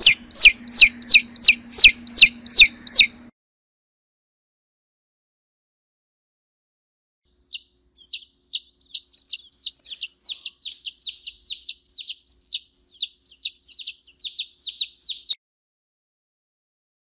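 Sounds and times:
chick peeping: 0.0 - 3.3, 7.4 - 15.4.

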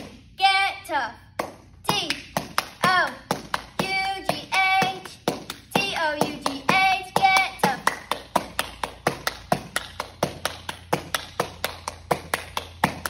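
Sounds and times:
girl singing a cheer chant: 0.0 - 8.4
hand claps: 1.4 - 13.0.

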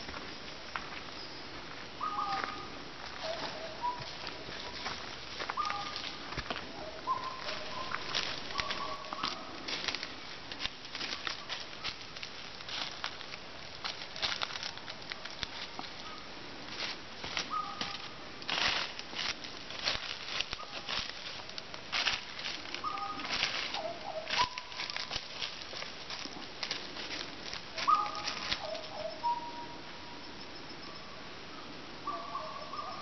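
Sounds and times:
footsteps in dry leaf litter: 0.0 - 29.4
whistled bird calls: 17.5 - 17.8, 22.8 - 23.2, 27.8 - 30.2.

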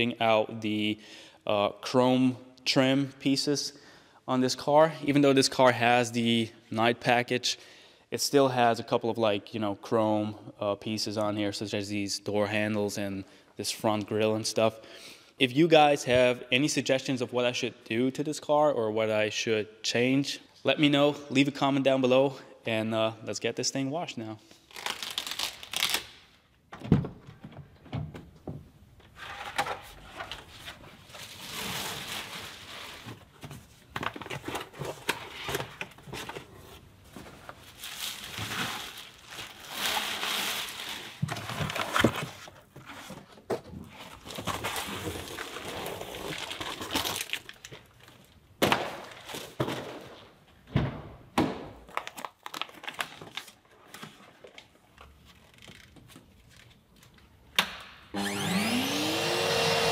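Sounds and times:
cardboard rustling: 29.2 - 47.4.

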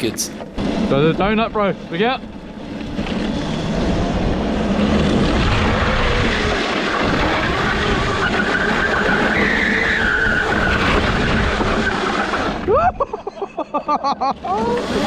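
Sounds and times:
tyres skidding on road: 0.0 - 13.2.

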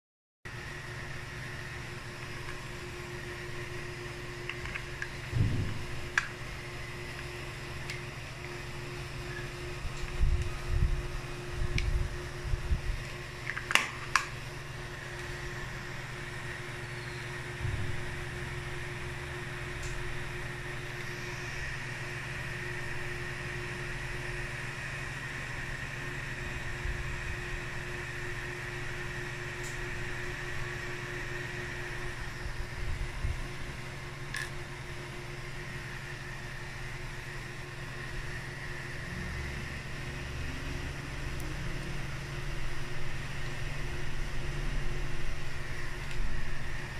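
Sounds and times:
cooling fan humming: 0.5 - 46.9.

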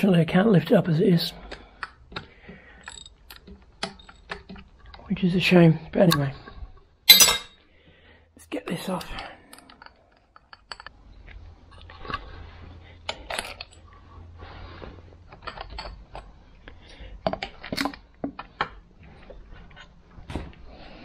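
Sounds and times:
metallic clicks and clinks of wrench: 2.8 - 4.3.

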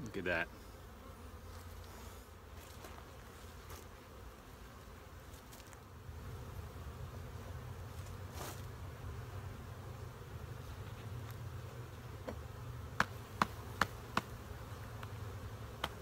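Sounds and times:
honeybees buzzing: 0.0 - 16.0
taps on hive box: 12.2 - 12.4, 13.0 - 14.4, 15.0 - 15.2, 15.8 - 16.0.

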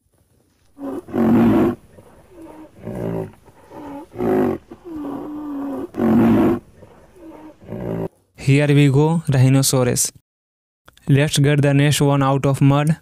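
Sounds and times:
pitched animal calls: 0.8 - 8.1.

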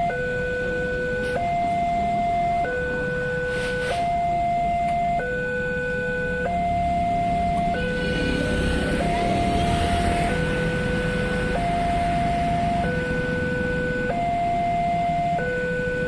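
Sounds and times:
low road traffic rumble: 0.0 - 16.0
two-tone crossing warning alarm: 0.0 - 16.0.

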